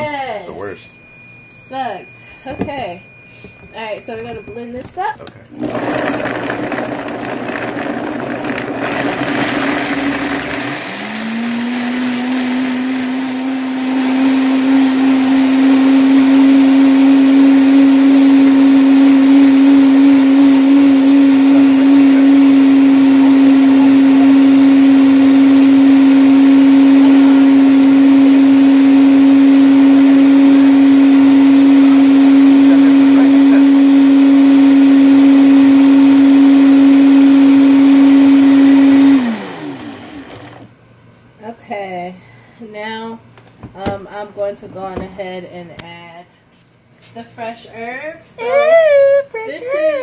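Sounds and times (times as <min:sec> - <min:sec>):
blender motor whining: 0:05.5 - 0:40.7.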